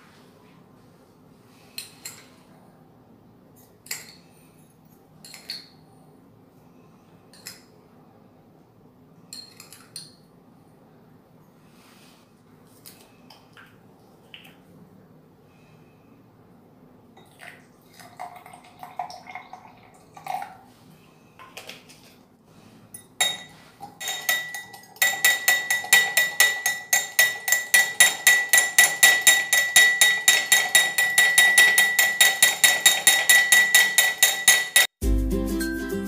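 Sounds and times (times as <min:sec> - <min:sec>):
metal spoon clinking in glass: 0:09.3 - 0:10.2, 0:23.0 - 0:34.9.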